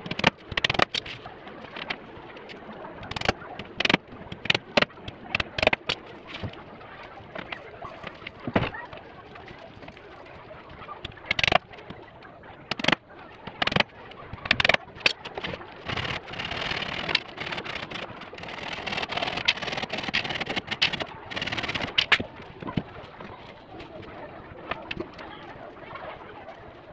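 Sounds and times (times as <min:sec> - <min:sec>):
wood rubbing and scraping: 0:03.0 - 0:06.6, 0:12.6 - 0:25.6.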